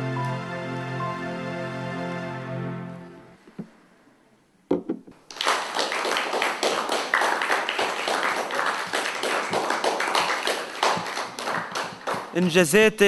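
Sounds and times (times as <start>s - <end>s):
single knock: 4.7s - 5.2s
audience applauding: 5.2s - 12.7s.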